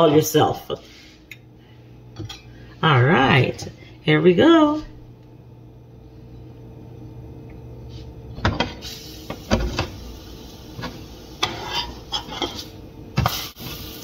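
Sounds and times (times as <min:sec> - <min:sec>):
steady low hum: 0:00.0 - 0:14.0
metal spatula scraping frying pan: 0:11.4 - 0:12.7.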